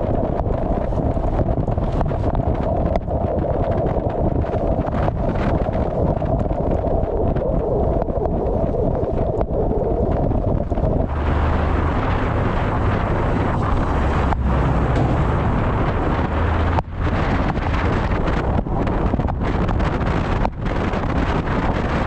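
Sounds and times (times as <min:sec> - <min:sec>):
steady low rumble: 0:00.0 - 0:22.0
wind buffeting microphone: 0:00.0 - 0:22.0.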